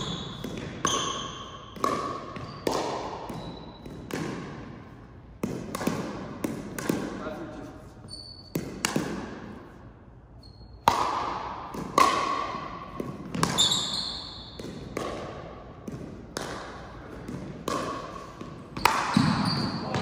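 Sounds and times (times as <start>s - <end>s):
ball hits echoing in gym: 0.0s - 20.0s
short high squeaks: 8.0s - 8.6s, 10.4s - 10.8s, 13.6s - 14.5s.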